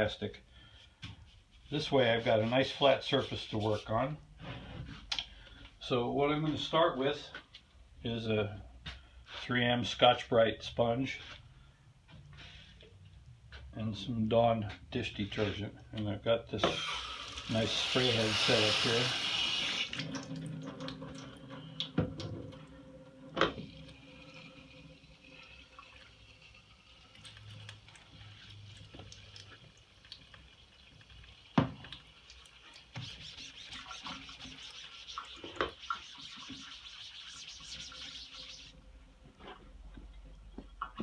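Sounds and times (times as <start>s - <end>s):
water spraying onto mesh: 17.5s - 20.0s
sponge scrubbing mesh: 32.6s - 38.8s.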